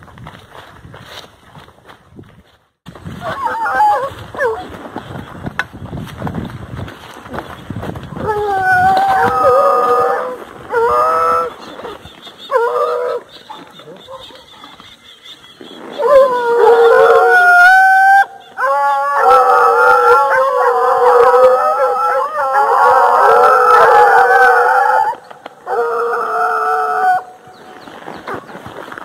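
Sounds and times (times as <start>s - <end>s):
hounds baying and howling: 3.1s - 4.8s, 8.2s - 15.0s, 15.8s - 27.5s.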